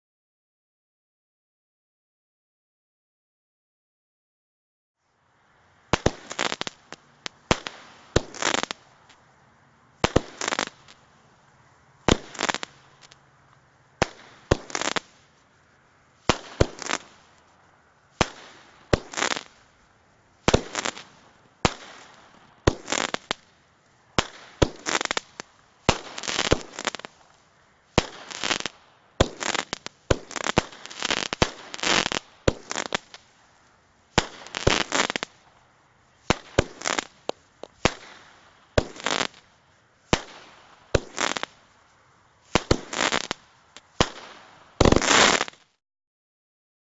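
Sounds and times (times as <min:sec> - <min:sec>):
firework bangs: 0:05.9 - 0:09.2, 0:10.0 - 0:11.1, 0:12.0 - 0:13.2, 0:14.0 - 0:15.4, 0:16.2 - 0:17.4, 0:18.2 - 0:19.7, 0:20.4 - 0:27.3, 0:27.9 - 0:33.3, 0:34.1 - 0:35.5, 0:36.2 - 0:39.5, 0:40.1 - 0:41.6, 0:42.5 - 0:45.7.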